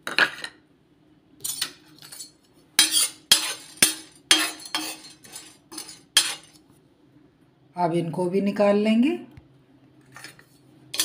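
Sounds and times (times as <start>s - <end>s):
metal spatula scraping iron pan: 1.4s - 6.6s, 10.2s - 11.0s.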